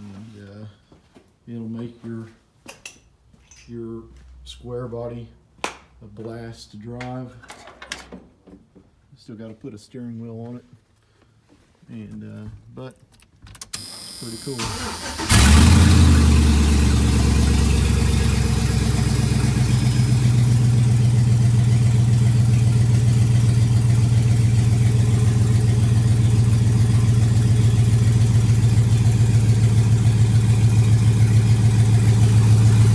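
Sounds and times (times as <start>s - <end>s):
pickup truck engine idling: 14.7s - 32.9s.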